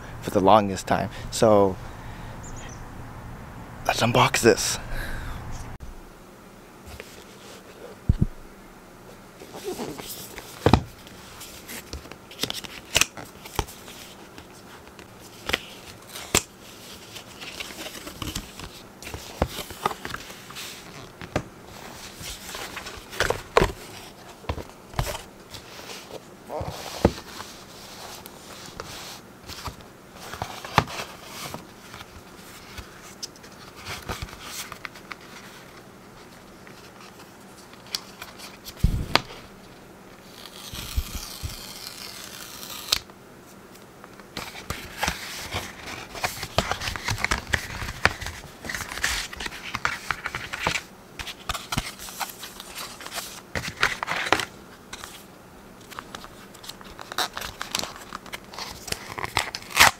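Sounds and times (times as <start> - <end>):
paper tab ripping: 40.2 - 43.1, 58.6 - 59.9
hands tapping and rustling packaging: 44.1 - 55.2
paper crinkling: 44.3 - 55.2.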